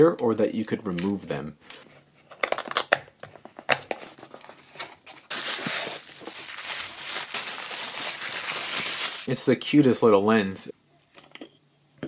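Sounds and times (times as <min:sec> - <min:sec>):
cardboard box being opened: 0:04.1 - 0:09.2
bubble wrap crinkling: 0:04.1 - 0:09.3.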